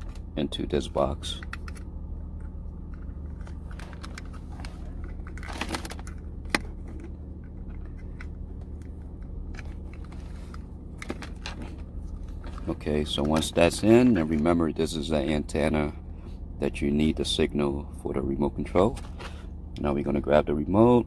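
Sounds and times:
steady low hum: 0.0s - 21.0s
plastic handling noises: 1.2s - 14.5s.

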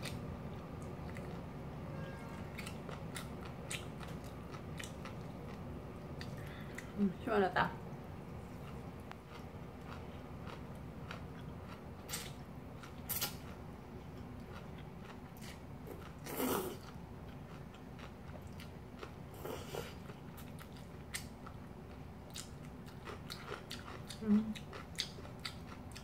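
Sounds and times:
chewing: 2.5s - 6.9s, 14.2s - 26.0s.

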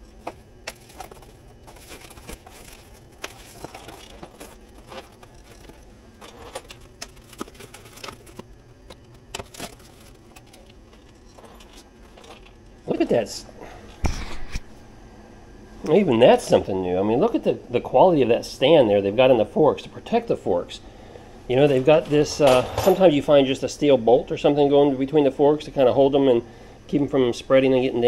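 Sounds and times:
foam and plastic rustling: 0.1s - 13.0s.

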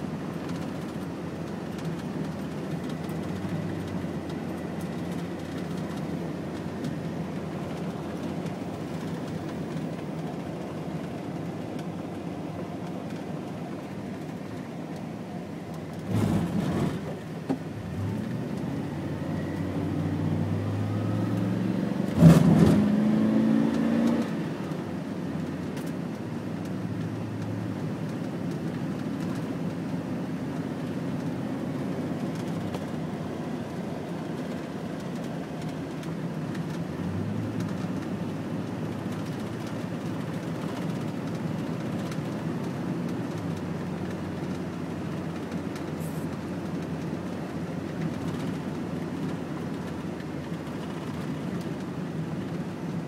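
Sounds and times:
car cabin road and engine noise: 0.0s - 53.0s.

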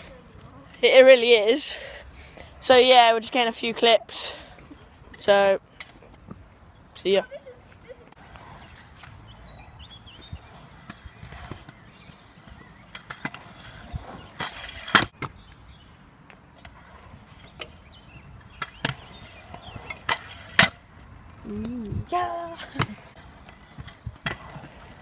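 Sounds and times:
scooter wheels rumbling on concrete: 0.0s - 25.0s.

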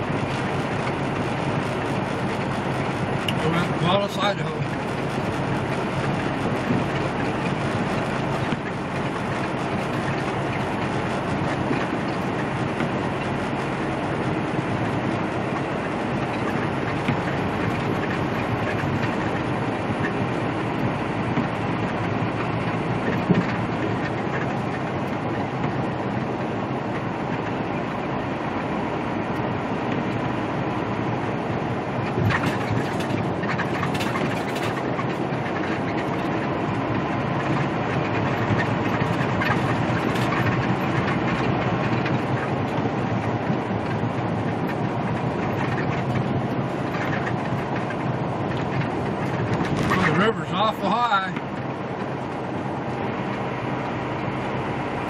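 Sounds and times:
diesel engine hum: 0.0s - 55.0s
tyre noise on wet road: 0.0s - 55.0s.

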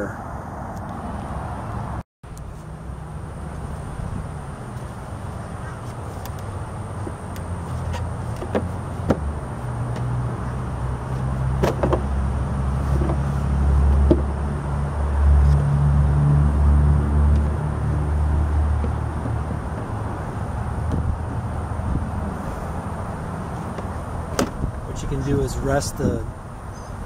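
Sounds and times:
plastic seat bucket clicks and knocks: 11.6s - 12.1s.

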